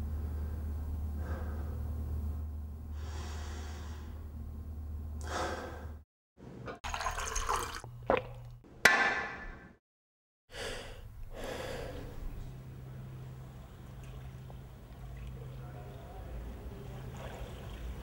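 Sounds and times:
steady low hum: 0.0 - 6.0, 10.6 - 18.0
person breathing heavily: 0.3 - 2.0, 2.9 - 4.2, 5.2 - 6.0, 10.5 - 12.7
tap water gushing into a glass: 6.8 - 8.4, 16.5 - 18.0.

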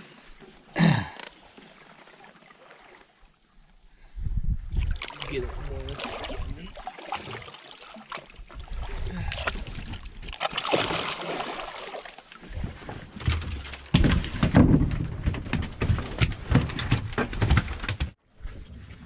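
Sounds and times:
water splashing against boat hull: 4.7 - 18.2.

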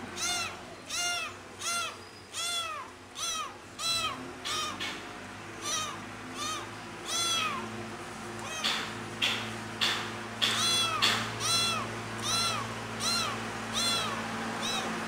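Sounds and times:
kitten meowing loudly: 0.1 - 4.8, 5.6 - 7.7, 8.4 - 8.8, 10.4 - 15.0.

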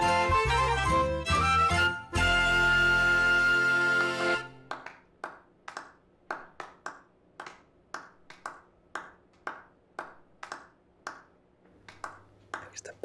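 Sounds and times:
sparse slow clapping in hall: 4.6 - 13.0.

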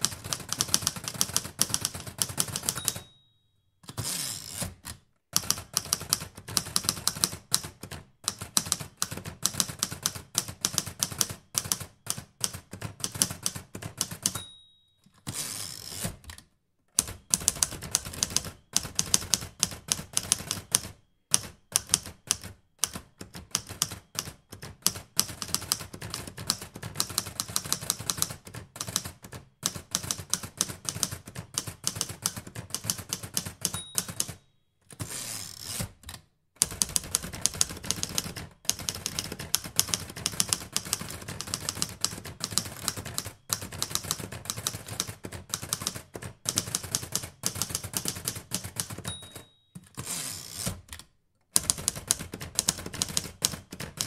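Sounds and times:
typewriter keys clacking: 0.0 - 3.1, 3.9 - 14.4, 17.0 - 35.2, 35.8 - 54.0
typewriter bell ding: 1.7 - 3.6, 14.1 - 15.2, 33.5 - 34.5, 48.8 - 50.0
typewriter carriage return slide: 3.8 - 5.0, 15.2 - 16.4, 34.9 - 36.2, 47.8 - 51.0.

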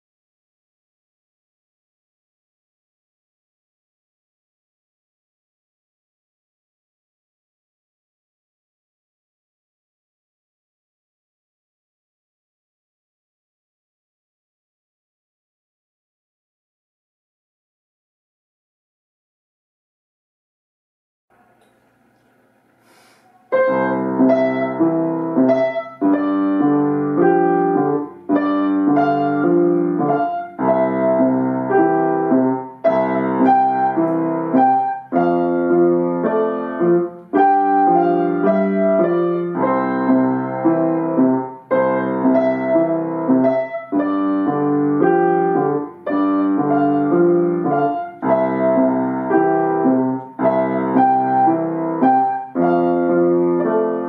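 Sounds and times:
upright piano playing: 23.5 - 54.0.

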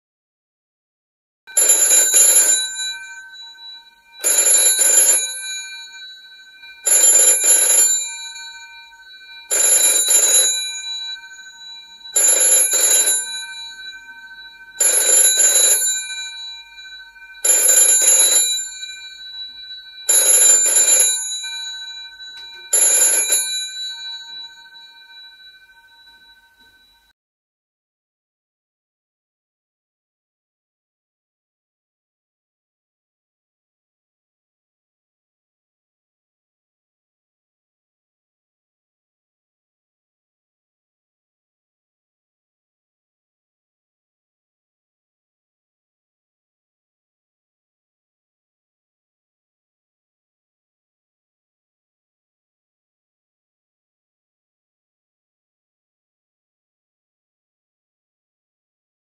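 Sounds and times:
rotary telephone bells ringing: 1.5 - 27.1.

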